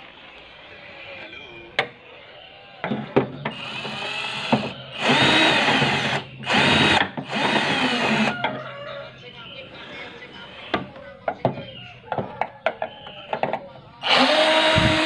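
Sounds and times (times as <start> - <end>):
electric screwdriver motor whirring: 3.6 - 8.3, 14.1 - 15.0.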